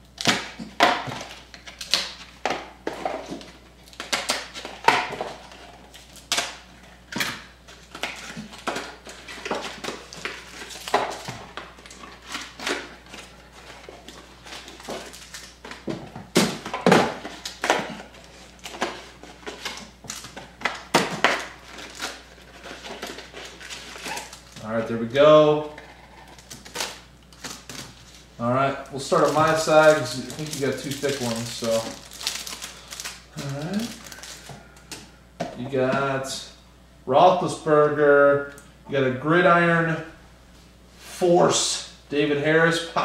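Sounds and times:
card wrappers crinkling and rustling: 0.0s - 24.9s, 25.6s - 35.1s.

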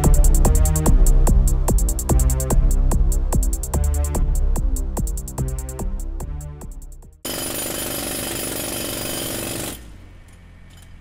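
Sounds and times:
jackhammer pounding: 7.2s - 11.0s.

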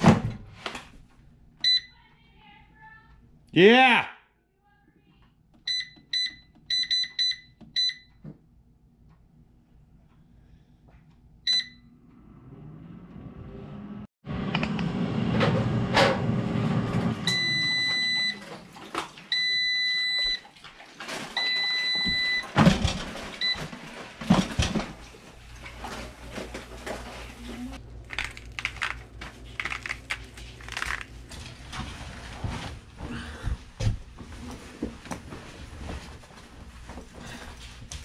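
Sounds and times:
air fryer alarm beeps: 1.6s - 2.0s, 5.7s - 8.2s, 11.5s - 11.9s, 17.2s - 18.4s, 19.3s - 20.4s, 21.4s - 22.5s
touch-panel beeps: 5.7s - 8.1s, 11.5s - 11.8s.

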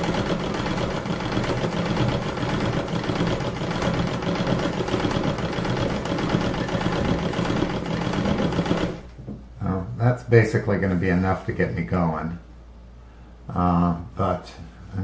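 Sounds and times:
sewing machine clattering: 0.0s - 9.1s.

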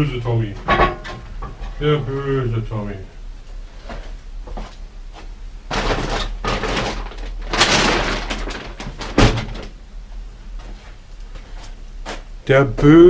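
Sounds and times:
scraping and rustling: 3.6s - 9.8s.

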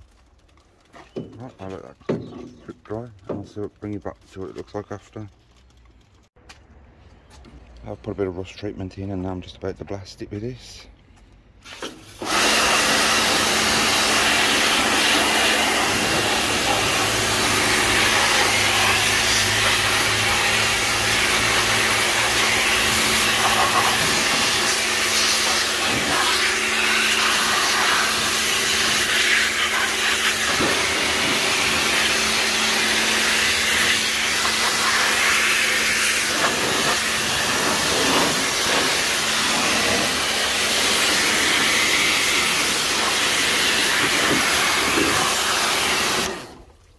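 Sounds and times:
pressure washer spraying metal: 11.6s - 46.6s.

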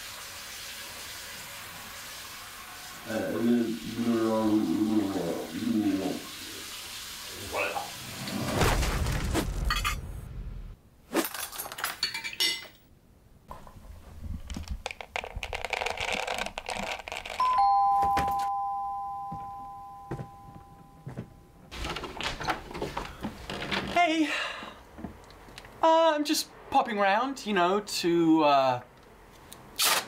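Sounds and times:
crockery clinking: 11.3s - 12.8s
two-tone doorbell chime: 17.4s - 21.6s.

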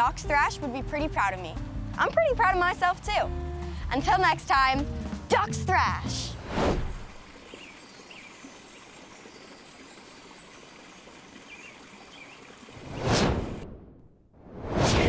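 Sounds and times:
rushing and splashing water: 6.2s - 13.6s
loud whoosh: 12.8s - 15.0s.

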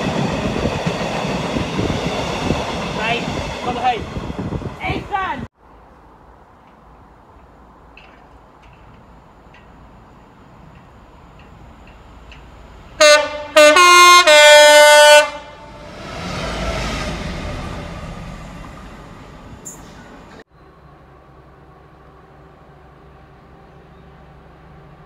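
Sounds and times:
locomotive rumble passing: 0.0s - 25.0s
two-tone locomotive horn: 13.0s - 15.9s.

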